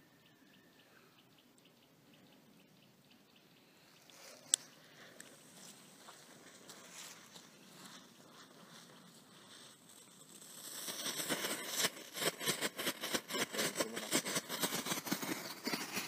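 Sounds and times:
firework crackling: 6.0s - 16.0s.

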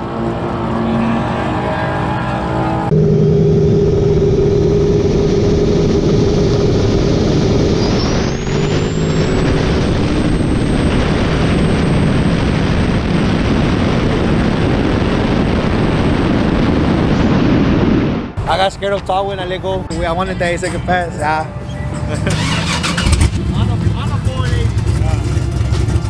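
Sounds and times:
truck engine revving: 0.0s - 26.0s
wind noise on camera: 3.6s - 18.4s.

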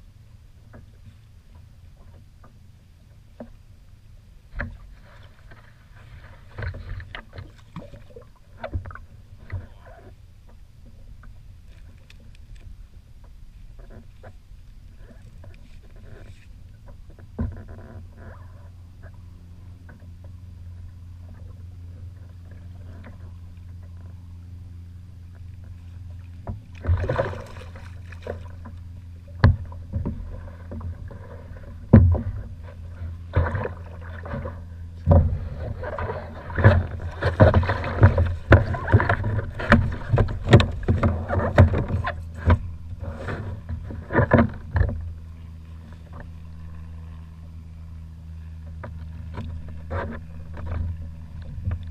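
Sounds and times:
steady low hum: 0.0s - 51.9s
water splashing: 25.4s - 45.0s.

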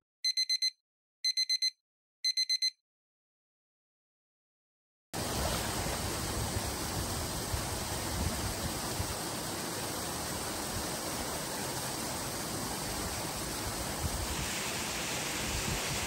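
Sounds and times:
quick high alarm beeps: 0.2s - 2.8s
outdoor noise haze: 5.2s - 16.0s.

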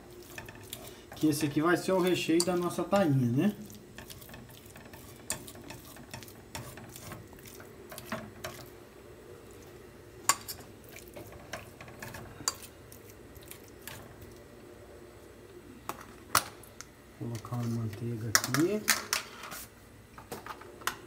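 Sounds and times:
fork mashing potatoes in metal pot: 0.0s - 8.7s, 10.2s - 14.4s.

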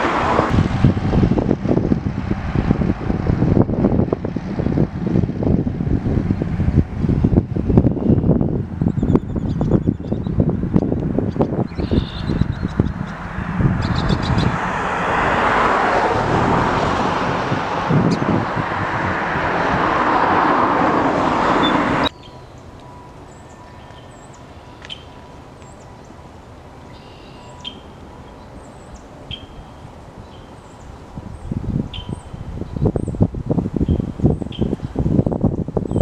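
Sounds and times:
steady rushing noise: 0.0s - 23.6s
high bird chirps: 8.9s - 10.4s, 11.3s - 13.2s, 13.8s - 14.6s, 21.6s - 26.1s, 26.9s - 30.9s, 31.9s - 32.8s.

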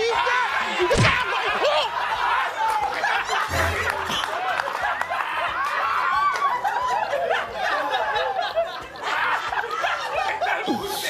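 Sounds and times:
audience laughter: 0.0s - 11.0s.

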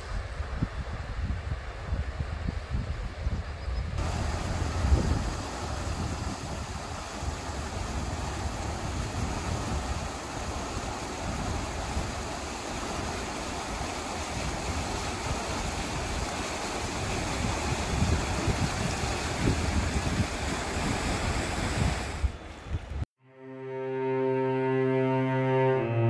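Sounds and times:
wind buffeting microphone: 0.0s - 23.0s
river water rushing: 4.0s - 22.5s.

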